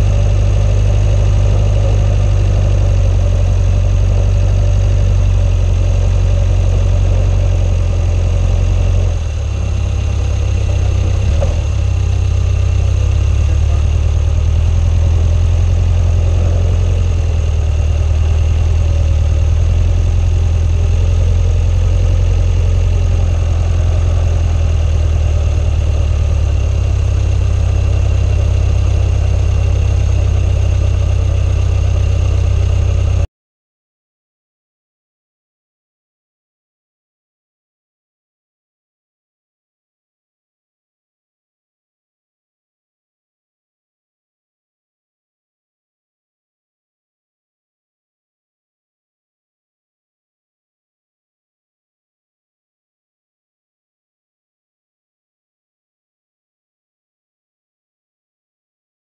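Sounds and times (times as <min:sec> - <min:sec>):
swamp buggy engine drone: 0:00.0 - 0:33.3.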